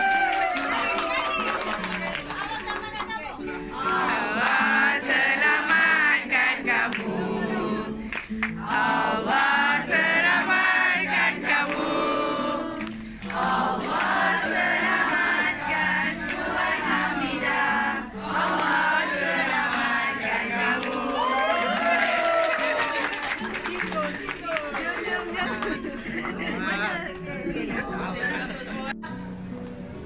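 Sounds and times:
voices singing in chorus: 3.6s - 22.5s.

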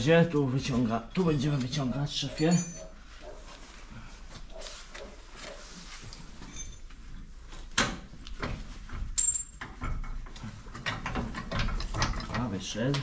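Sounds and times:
metal clinks and scraping: 2.2s - 3.0s, 6.2s - 7.2s, 9.1s - 12.3s.

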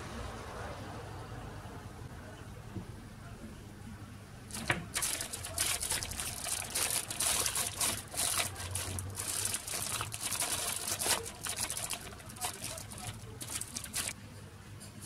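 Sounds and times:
plastic bag crinkling: 4.5s - 14.2s.

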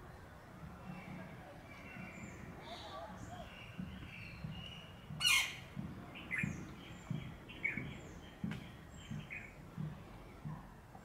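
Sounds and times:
birds chirping: 0.0s - 11.0s
loud harsh bird call: 4.6s - 5.7s.

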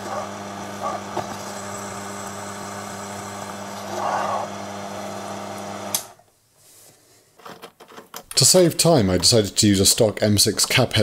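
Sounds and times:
lathe motor humming: 0.0s - 6.1s.

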